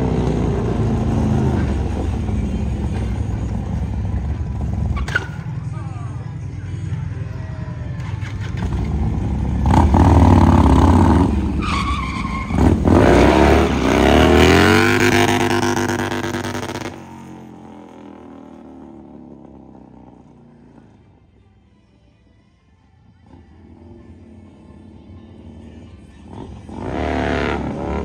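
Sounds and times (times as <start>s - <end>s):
motorcycle engine revving: 0.0s - 5.5s, 8.0s - 20.4s, 25.4s - 28.0s.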